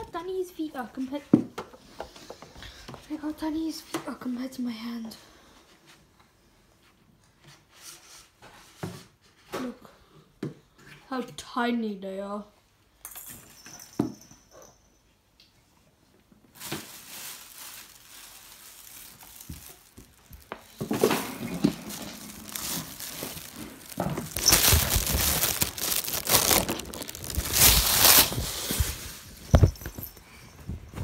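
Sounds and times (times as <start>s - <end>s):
plastic crinkling and rustling: 16.4s - 31.0s.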